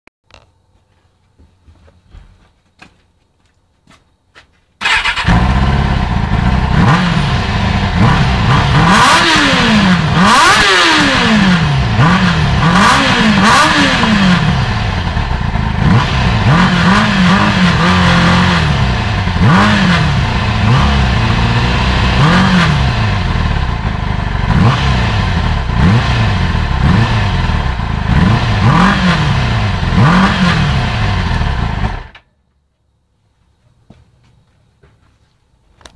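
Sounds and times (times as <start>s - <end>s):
motorcycle engine revving: 4.8s - 32.2s.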